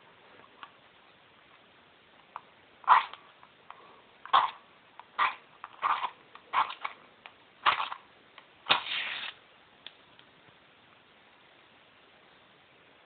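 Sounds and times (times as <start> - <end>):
match flaring: 8.7 - 9.4
match striking matchbox: 8.7 - 9.4.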